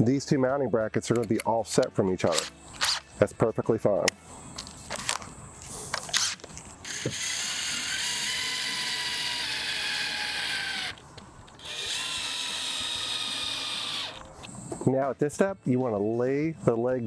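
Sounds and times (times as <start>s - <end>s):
drill clicks: 6.1s - 14.3s
drill motor whining: 6.2s - 11.0s, 11.6s - 14.6s.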